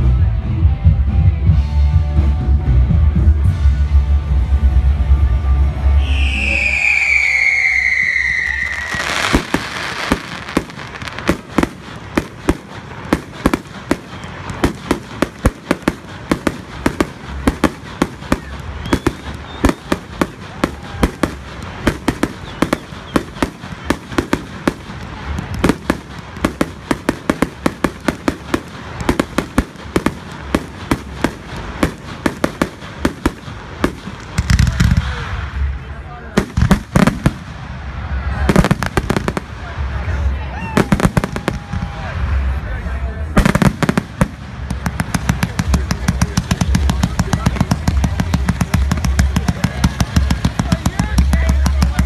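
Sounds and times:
firework falling whistle: 5.9 - 9.7, 18.4 - 21.0, 22.2 - 24.0
firework bangs and crackling pops: 6.0 - 52.0.

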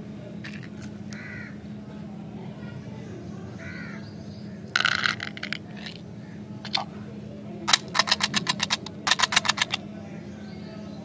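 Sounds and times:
hard candies clicking and rattling: 4.7 - 6.0, 6.7 - 6.9, 7.7 - 9.8.

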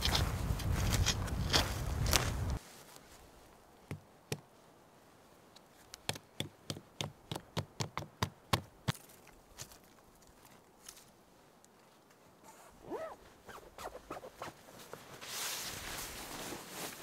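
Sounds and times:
footsteps on a trail: 0.0 - 3.6, 8.9 - 12.3.

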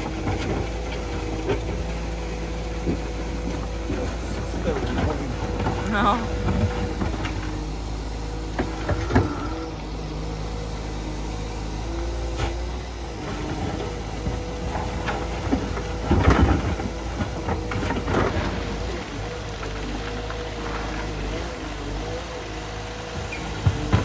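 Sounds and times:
clunks: 0.0 - 10.0, 12.0 - 24.0
excavator engine running: 0.0 - 24.0.

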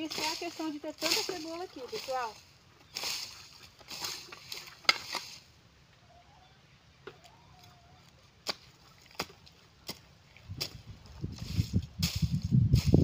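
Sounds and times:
garden tool striking soil: 0.0 - 5.5.

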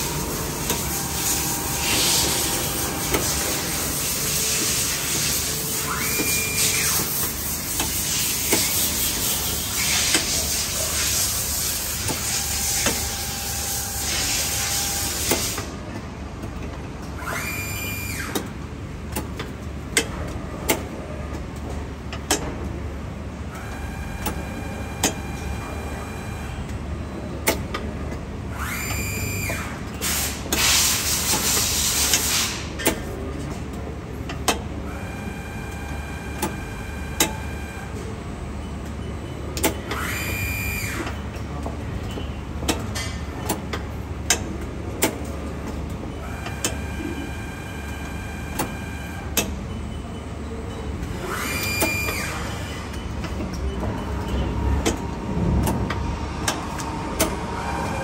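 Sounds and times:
machine hiss: 0.0 - 15.7, 30.0 - 32.8
machine whine: 0.0 - 15.8, 28.4 - 30.1, 34.8 - 41.5, 46.0 - 58.0
machine mechanism clicks: 38.8 - 40.0.

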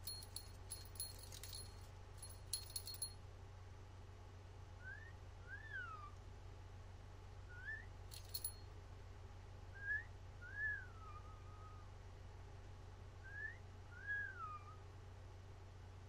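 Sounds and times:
metallic jingle: 0.0 - 3.2, 8.1 - 8.6.

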